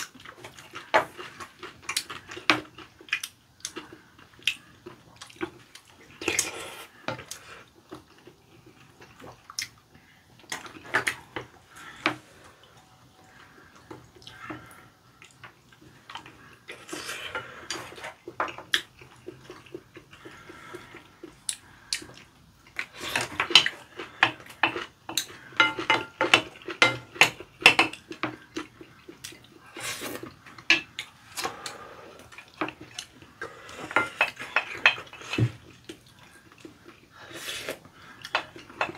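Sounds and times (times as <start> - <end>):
utensils clinking on ceramic bowls: 25.6 - 27.9.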